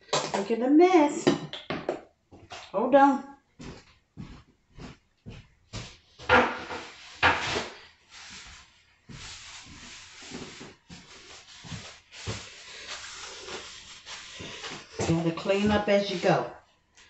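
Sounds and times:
paper towel rubbing countertop: 0:06.7 - 0:16.6.

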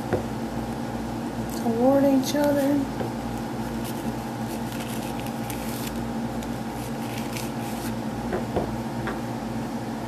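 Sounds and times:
background hum: 0:00.0 - 0:10.0
paper rustling and crinkling: 0:03.3 - 0:08.0.

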